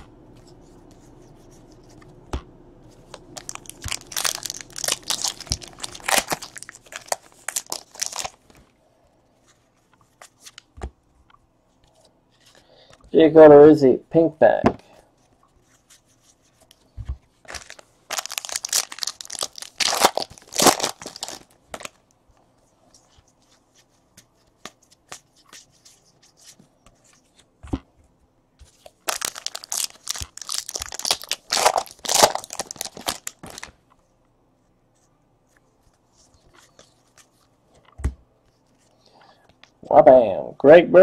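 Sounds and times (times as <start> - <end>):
paper and foil crinkling and tearing: 3.4 - 8.5, 17.5 - 22.0, 28.9 - 33.7.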